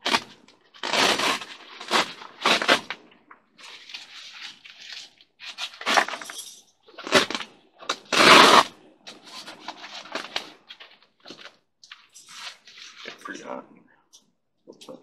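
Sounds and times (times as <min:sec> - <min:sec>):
fabric rustling and crinkling: 0:00.0 - 0:13.5.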